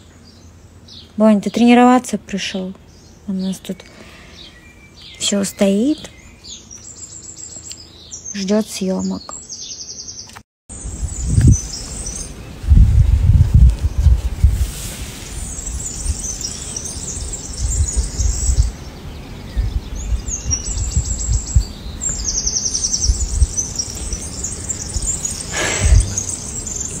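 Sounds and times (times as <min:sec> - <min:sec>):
small birds chirping: 0:00.0 - 0:14.3, 0:15.3 - 0:27.0
low rumbling: 0:10.8 - 0:27.0
rapid bird trills: 0:15.4 - 0:27.0.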